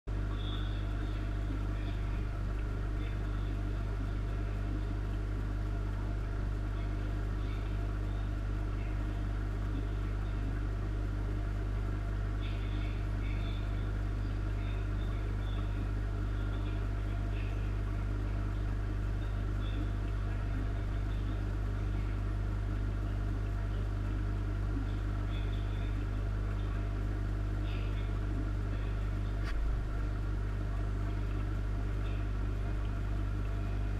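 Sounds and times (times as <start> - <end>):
aquarium air pump humming: 0.1 - 33.9.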